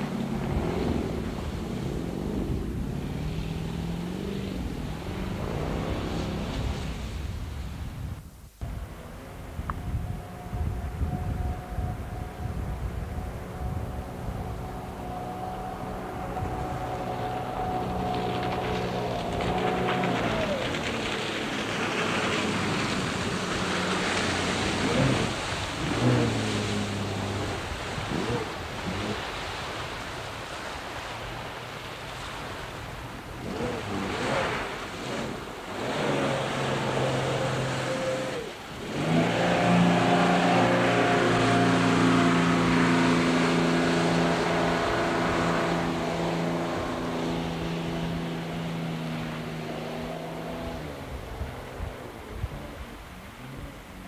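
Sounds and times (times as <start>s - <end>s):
jetboat engines revving: 0.0s - 54.0s
rushing water: 0.0s - 54.0s.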